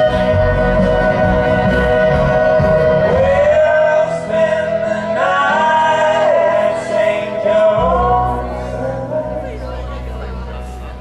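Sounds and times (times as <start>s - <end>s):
live band playing: 0.0s - 11.0s
low bass part: 0.0s - 11.0s
men singing in harmony: 2.0s - 9.9s.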